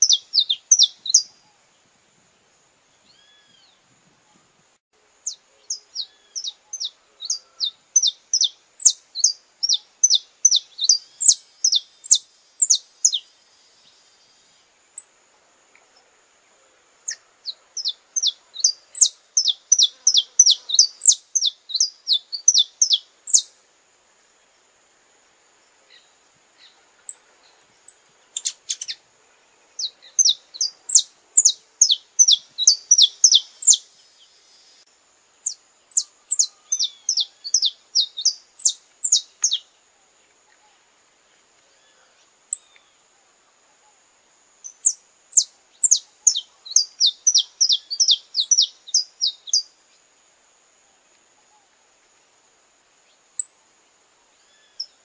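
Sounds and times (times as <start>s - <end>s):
finch singing: 0.0s - 1.3s, 5.2s - 13.2s, 17.1s - 23.5s, 29.8s - 33.8s, 35.4s - 39.6s, 44.7s - 49.7s.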